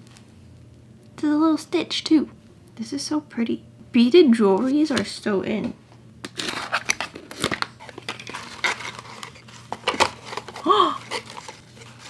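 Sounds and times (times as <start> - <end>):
paper packaging rustling and tearing: 6.3 - 12.0.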